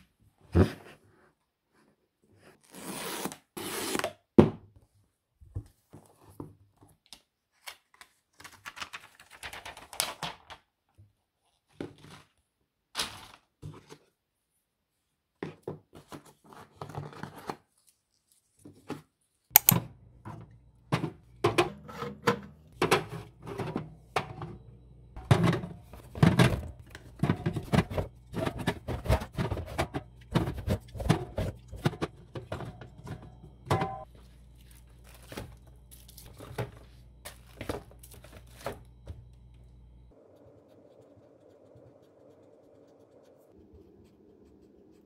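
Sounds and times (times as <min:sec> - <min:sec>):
low steady hum: 0:19.6 - 0:45.0.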